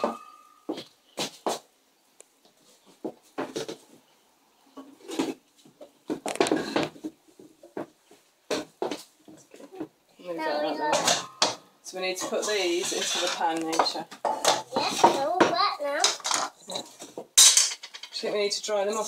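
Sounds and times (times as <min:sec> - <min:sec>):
kitchen things knocking and clattering: 0:06.1 - 0:07.9, 0:10.9 - 0:18.4.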